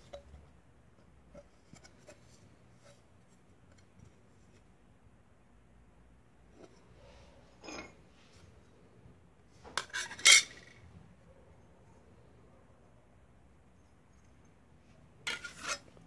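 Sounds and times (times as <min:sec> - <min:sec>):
metal scrape: 0:06.6 - 0:08.5, 0:09.7 - 0:10.8, 0:15.2 - 0:16.0.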